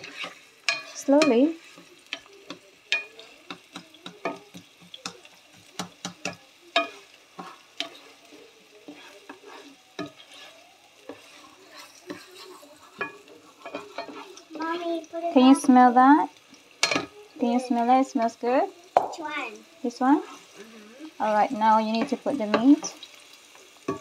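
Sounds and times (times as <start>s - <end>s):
spoon clicking against pan: 0.0s - 1.4s, 2.0s - 7.1s
spoon scraping a pan: 0.0s - 16.0s, 16.6s - 19.2s, 19.8s - 24.0s
onion and garlic sizzling: 0.0s - 24.0s.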